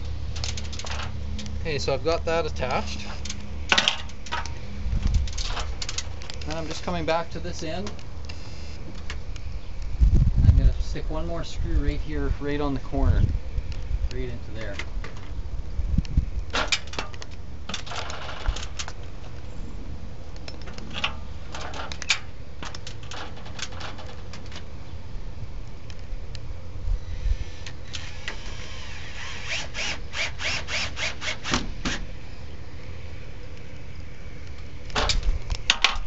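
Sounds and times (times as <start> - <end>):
steady low rumble: 0.0 - 29.5, 31.7 - 36.0
drill whirring: 27.1 - 32.0.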